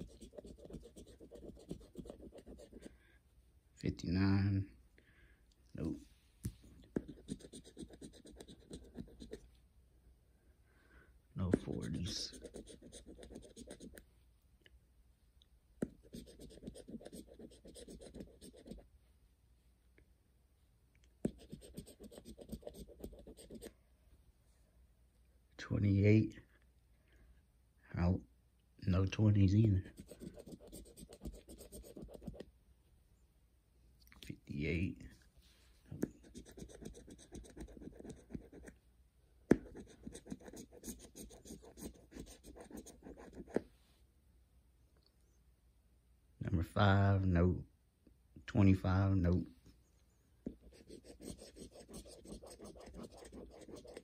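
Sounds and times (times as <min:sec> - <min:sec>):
coin scratching lottery ticket: 0:00.0 - 0:02.8, 0:50.8 - 0:54.0
scratching lottery ticket: 0:00.0 - 0:02.9, 0:07.0 - 0:09.4, 0:11.6 - 0:14.0, 0:16.0 - 0:18.8, 0:21.3 - 0:23.7, 0:29.8 - 0:32.4, 0:36.2 - 0:38.7, 0:39.6 - 0:43.6, 0:50.5 - 0:54.0.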